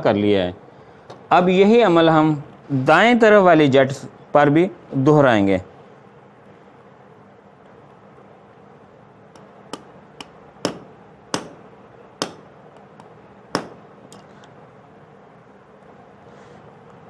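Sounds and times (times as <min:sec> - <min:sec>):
hammer tapping steel nail: 0:09.4 - 0:14.3.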